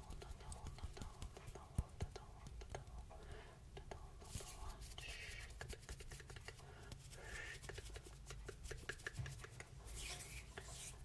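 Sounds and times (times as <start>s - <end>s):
soft rustling: 0.0s - 2.6s, 4.2s - 11.0s
fingers rubbing: 4.2s - 11.0s.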